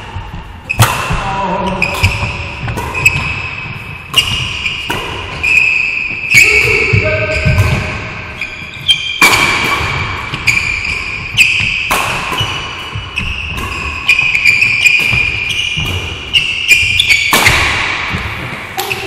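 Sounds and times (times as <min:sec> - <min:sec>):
shoes squeaking on court floor: 0:00.2 - 0:19.0
racket striking shuttlecock: 0:00.4 - 0:01.2, 0:01.8 - 0:19.0.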